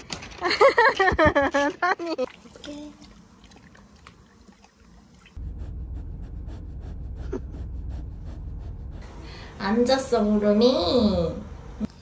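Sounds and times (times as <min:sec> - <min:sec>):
dog breathing rapidly: 0:05.4 - 0:09.6.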